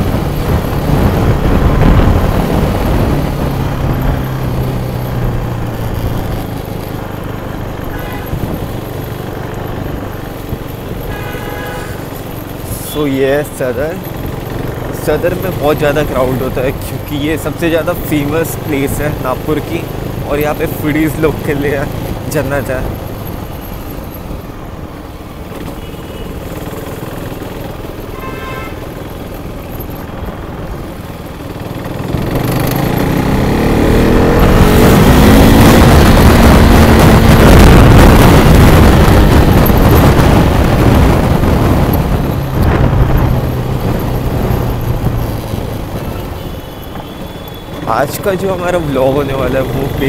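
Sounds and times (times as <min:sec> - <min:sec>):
wind rushing: 0:00.0 - 0:10.6, 0:32.0 - 0:46.3
motorcycle engine revving: 0:00.0 - 0:24.6, 0:25.2 - 0:50.0.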